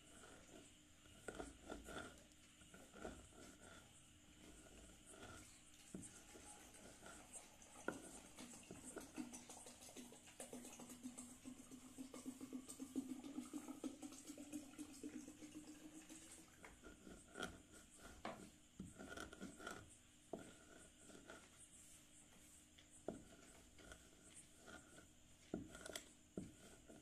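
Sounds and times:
soft clicks and scrapes: 16.2s - 27.0s.

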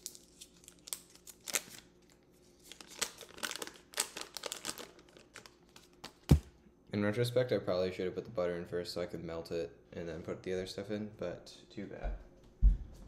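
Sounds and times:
paper wrapper crinkling and tearing: 0.0s - 6.4s.

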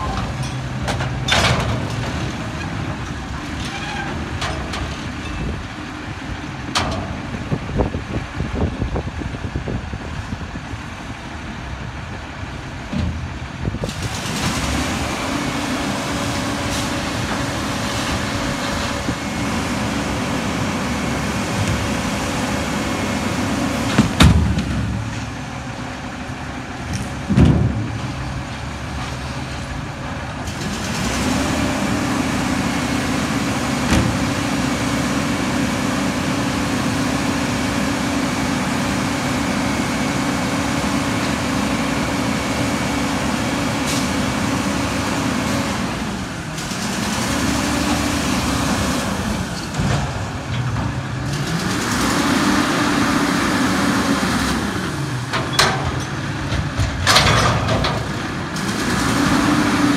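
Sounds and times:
garbage truck engine revving: 13.2s - 59.9s.

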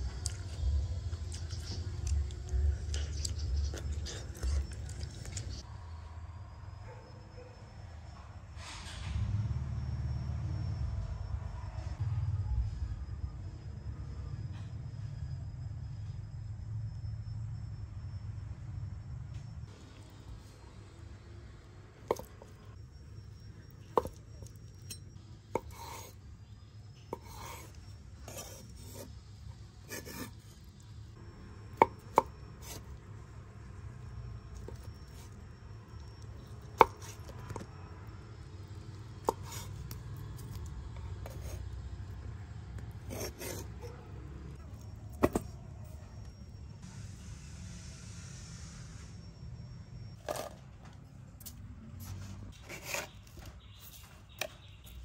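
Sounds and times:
knife chopping on wooden board: 25.6s - 26.1s, 27.1s - 27.7s, 29.9s - 30.3s, 43.1s - 43.9s, 45.2s - 45.5s.

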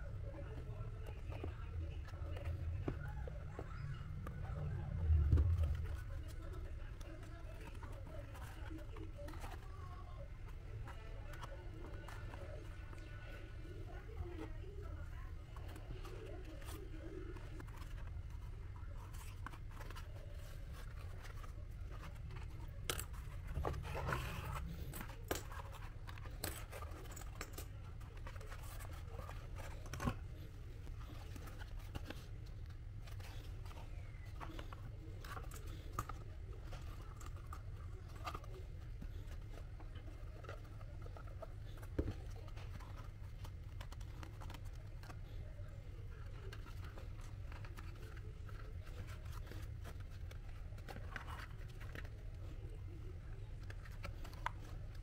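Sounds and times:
steady low hum: 0.0s - 55.0s.

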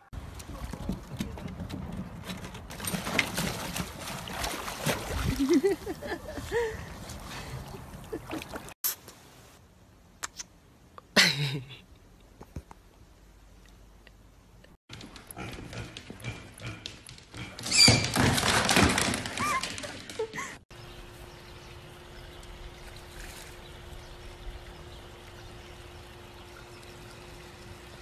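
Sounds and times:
water splashing against dock: 0.2s - 8.8s.

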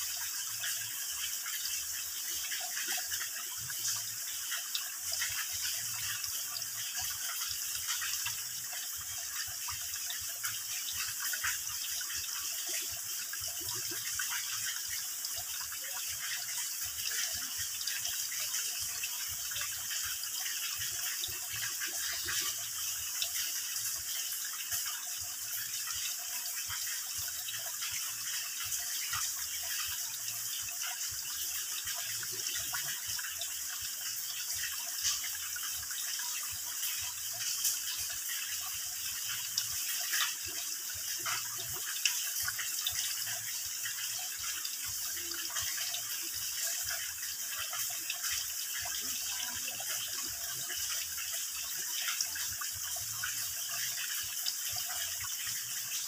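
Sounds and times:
water trickling into pool: 0.0s - 56.0s.

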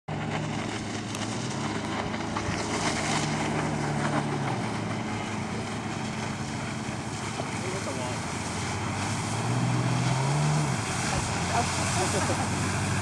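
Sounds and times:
jet ski engine droning: 0.1s - 13.0s
water rushing: 0.1s - 13.0s.

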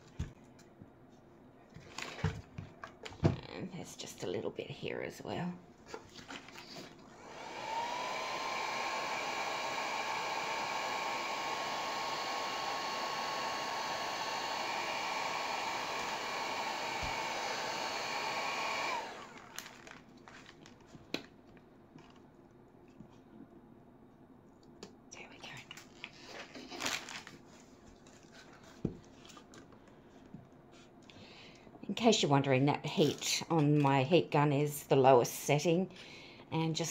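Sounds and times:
heat gun whirring: 7.1s - 20.0s.

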